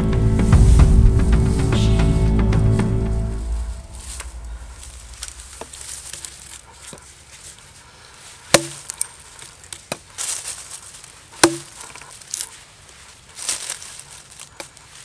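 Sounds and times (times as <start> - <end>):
axe chopping stick: 8.5 - 8.9, 11.4 - 11.8.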